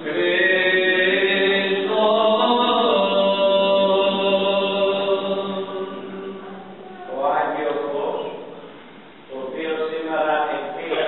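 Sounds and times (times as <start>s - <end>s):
chanted sung melody: 0.0s - 7.2s.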